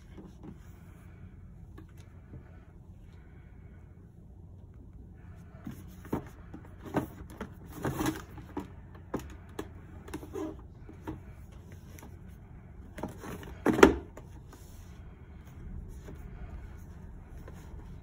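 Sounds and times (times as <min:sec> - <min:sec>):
cardboard boxes handled: 0:05.6 - 0:14.9.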